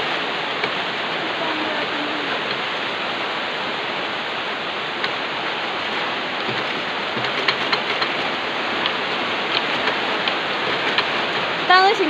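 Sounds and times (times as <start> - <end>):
steady rushing hiss: 0.0 - 12.0
light clicks and taps: 5.9 - 11.6.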